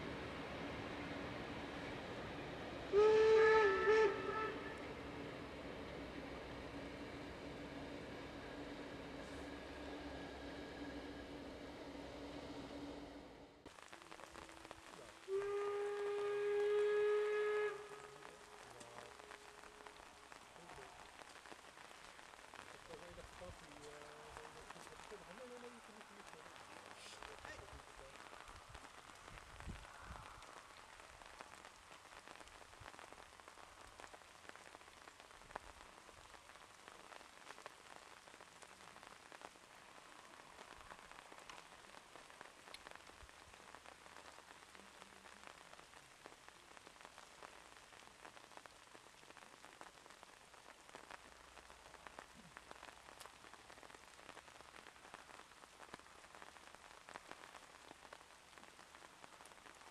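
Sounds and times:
faint hiss: 0.0 - 59.9
light crackles: 13.6 - 59.9.

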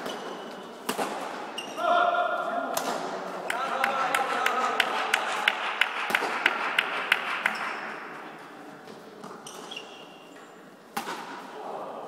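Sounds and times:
badminton rackets hitting shuttlecock: 0.0 - 1.7, 2.7 - 7.8, 10.9 - 11.5.

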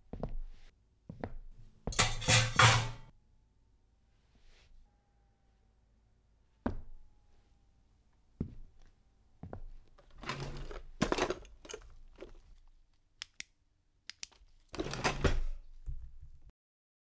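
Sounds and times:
knives and utensils rattling: 1.9 - 3.1
kitchen drawer sliding open: 14.8 - 15.6.

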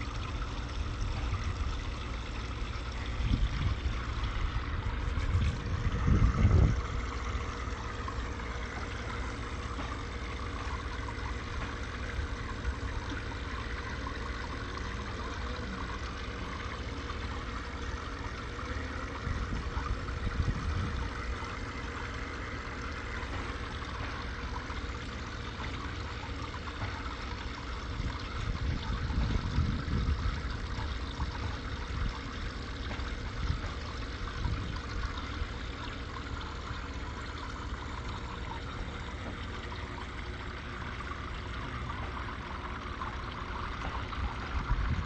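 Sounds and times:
bubbles streaming: 0.0 - 45.0
water trickling and splashing: 0.0 - 45.0
low rumble: 2.8 - 10.4.

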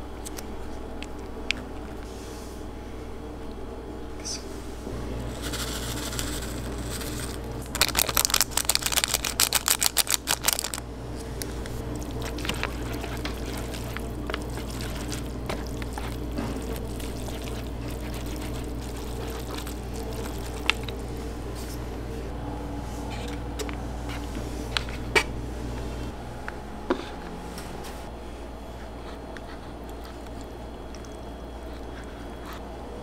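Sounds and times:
steady low hum: 0.0 - 33.0
chopsticks stirring wet noodles: 5.3 - 21.8, 28.8 - 32.6.

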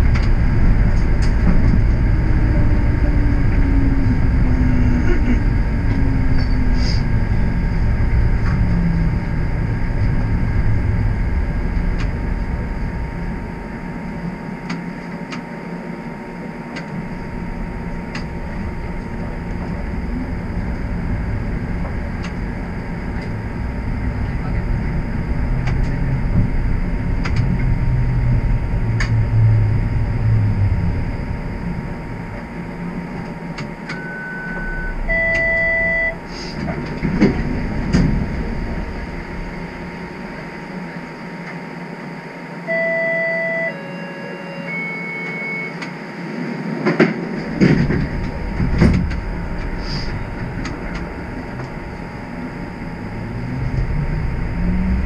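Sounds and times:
motor whine: 0.0 - 55.0
streetcar rumbling on rails: 0.0 - 55.0
electronic chime tones: 33.9 - 36.2, 42.6 - 45.8.

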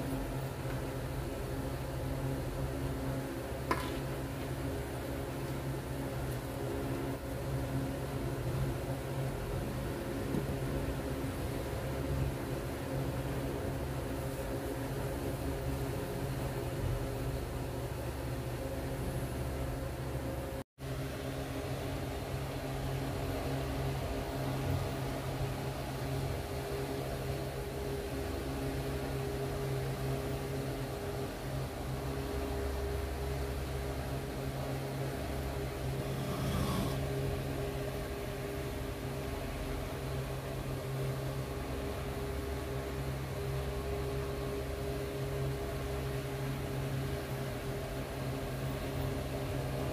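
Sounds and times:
low machine hum: 0.0 - 49.9
even hiss: 35.8 - 37.6.

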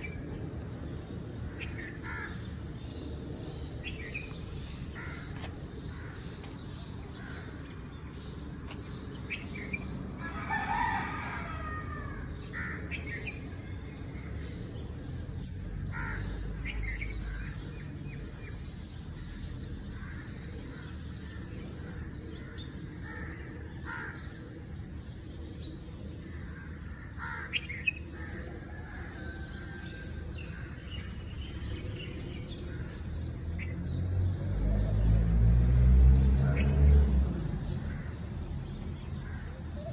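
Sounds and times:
birds chirping: 0.0 - 39.9
rooster crowing: 10.2 - 12.3.

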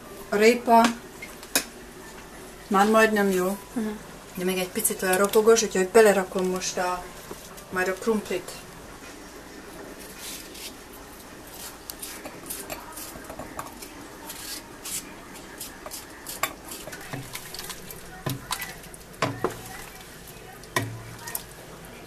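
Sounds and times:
knife cutting potato: 11.5 - 17.2.

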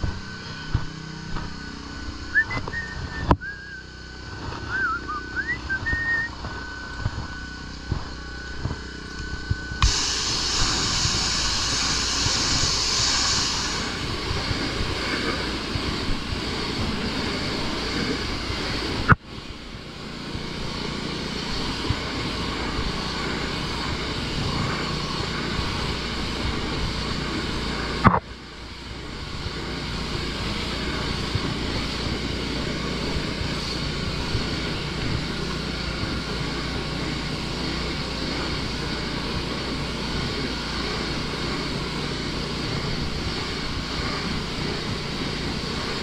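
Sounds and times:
pressure washer motor drone: 0.0 - 46.0
water spray hissing on wood: 9.8 - 19.0, 20.5 - 46.0.

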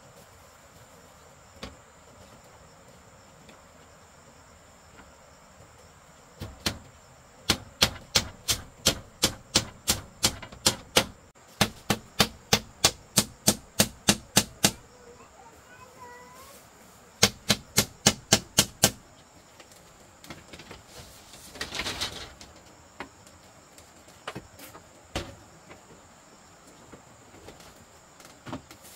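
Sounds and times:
hand tool striking bamboo: 7.5 - 14.8, 17.2 - 19.0.

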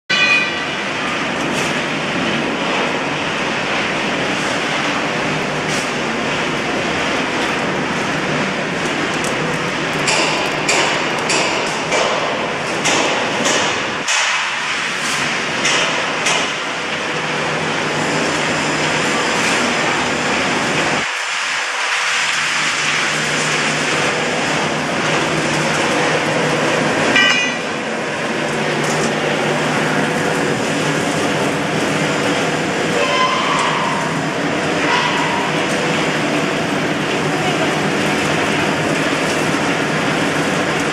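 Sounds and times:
drum dryer machine din: 0.1 - 40.9
sharp clattering knocks: 10.0 - 14.6.

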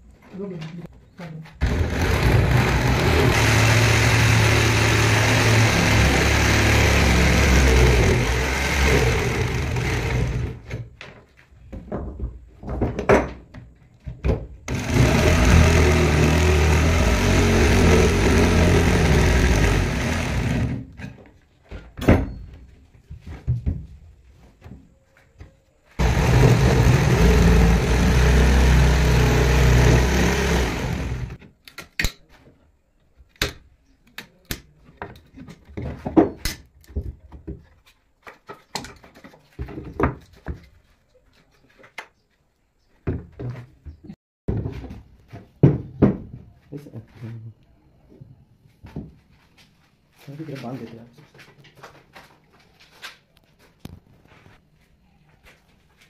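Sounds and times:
electric jigsaw cutting wood: 1.6 - 10.8, 14.7 - 21.0, 26.0 - 31.4.

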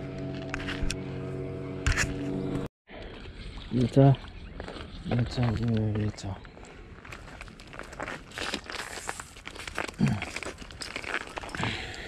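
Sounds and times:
plastic bags rustling: 7.2 - 11.6.

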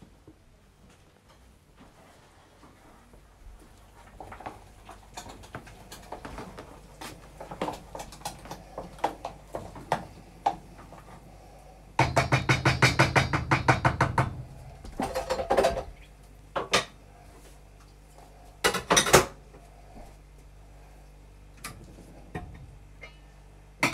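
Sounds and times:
potato masher knocking on pan: 12.0 - 14.4.

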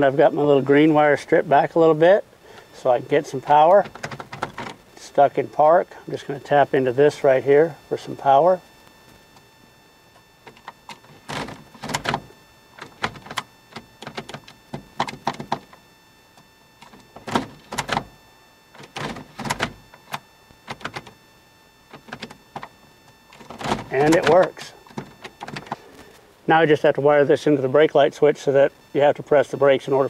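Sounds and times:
gear shifter clicks and clunks: 3.4 - 4.8, 10.2 - 15.8, 16.4 - 18.2, 18.8 - 21.2, 21.9 - 26.0.

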